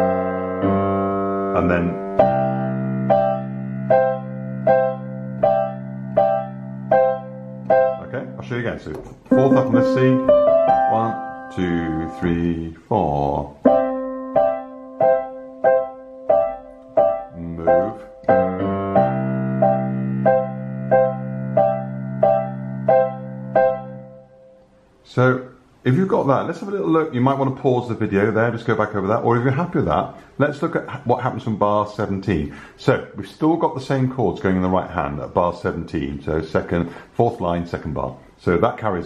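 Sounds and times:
digital piano chords: 0.0s - 25.0s
low piano notes held: 0.0s - 25.0s.

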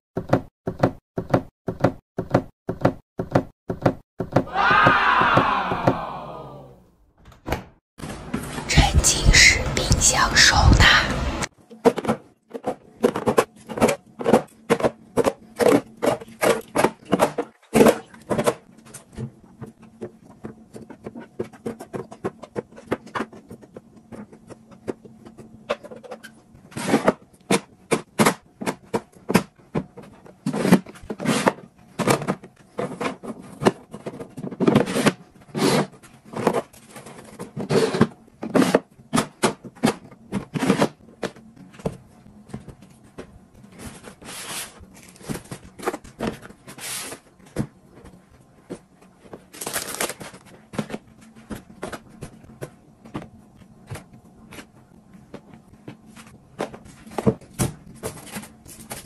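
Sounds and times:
items clicking on hard plastic: 44.8s - 59.0s.

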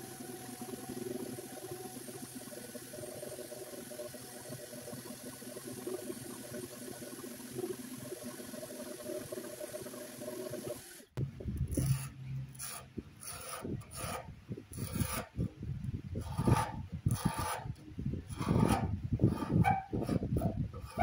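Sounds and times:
orbital sander running: 0.0s - 10.7s
scraper scraping wood: 11.7s - 15.5s, 16.2s - 21.0s.

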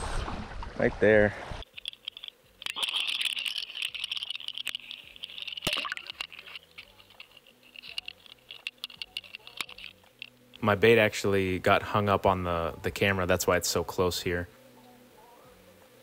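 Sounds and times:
crackling and ticking underwater: 1.5s - 11.1s.

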